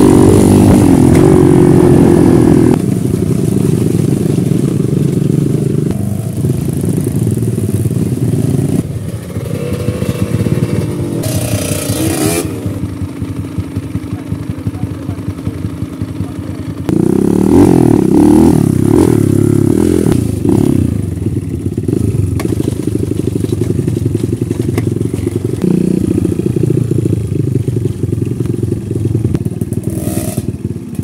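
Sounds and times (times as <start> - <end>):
dirt bike engine revving: 0.0 - 31.0
bike knocking over ground: 22.3 - 25.6.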